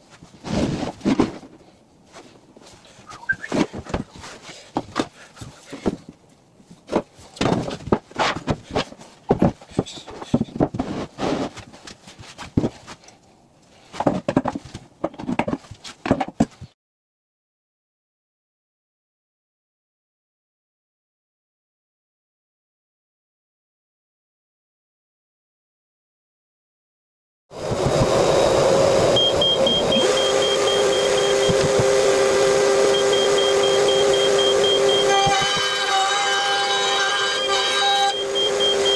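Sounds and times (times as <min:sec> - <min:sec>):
router cutting wood: 0:27.6 - 0:38.9.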